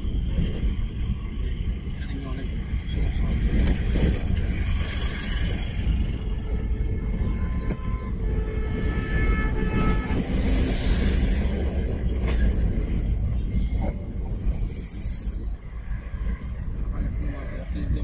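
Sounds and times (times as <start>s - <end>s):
car engine and tyres rumbling: 0.0s - 18.0s
vehicle horn: 6.1s - 10.8s.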